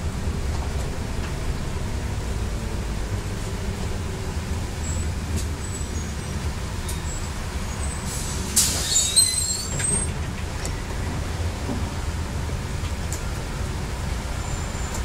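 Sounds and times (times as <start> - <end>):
bus engine running low: 0.0 - 15.0
brakes squealing: 4.2 - 11.4, 13.1 - 15.0
air brakes hissing: 7.1 - 10.1.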